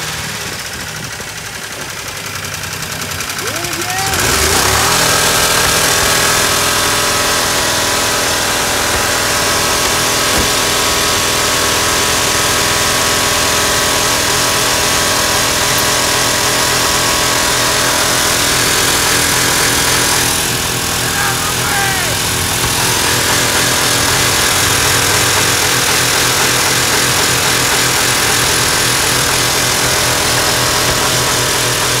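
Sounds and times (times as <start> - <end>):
truck engine at high revs: 0.0 - 32.0.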